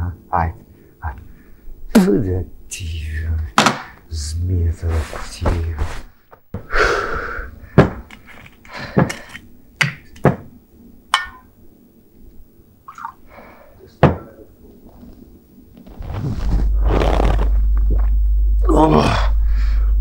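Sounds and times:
glass clink: 0:11.2 - 0:11.5.

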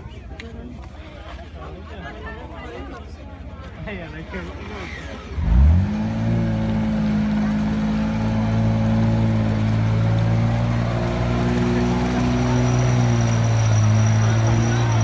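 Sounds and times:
off-road engine revving: 0:04.6 - 0:15.0
vehicle churning through mud: 0:04.6 - 0:15.0.

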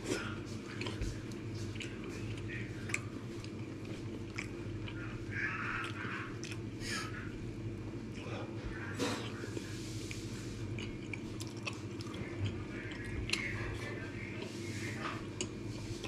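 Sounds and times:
person chewing: 0:00.0 - 0:16.0.

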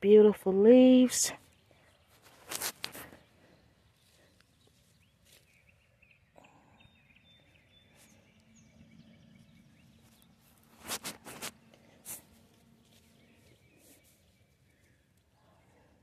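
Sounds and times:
hand pressing soil: 0:02.2 - 0:03.3, 0:10.1 - 0:14.4.

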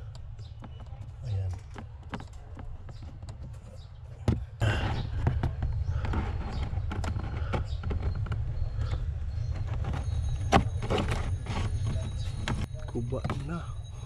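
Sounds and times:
filter scraping against housing: 0:04.7 - 0:13.7.

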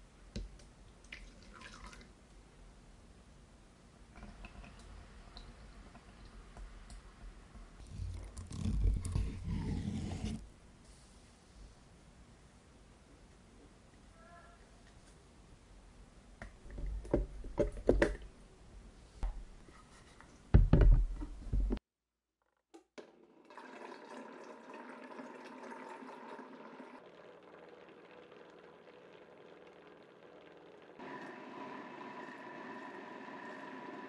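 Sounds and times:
blender motor running: 0:31.0 - 0:34.0.

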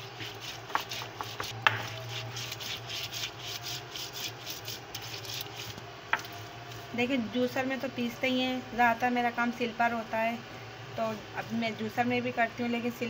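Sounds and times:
stone grinding scraping: 0:00.0 - 0:05.8
stone knocking on stone: 0:00.7 - 0:01.9.

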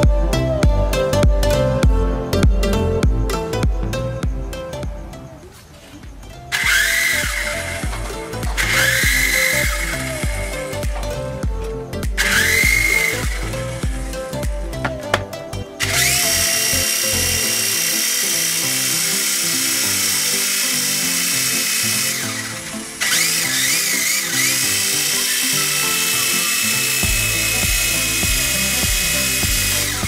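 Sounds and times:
background music: 0:00.0 - 0:30.0
toy helicopter motor whine: 0:06.5 - 0:11.4, 0:12.0 - 0:15.2, 0:15.8 - 0:30.0.

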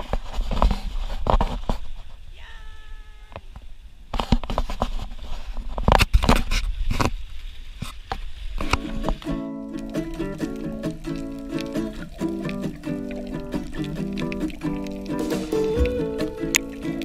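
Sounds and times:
knocks and scrapes on rock: 0:00.0 - 0:02.2, 0:04.2 - 0:07.2
water splashing: 0:05.6 - 0:17.0
music: 0:08.8 - 0:17.0.

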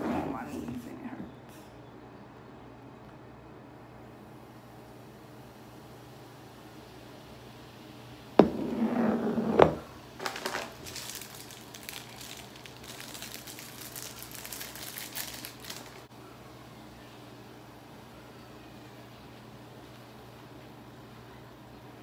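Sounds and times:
wet clay crackling while stirred: 0:10.2 - 0:16.1.

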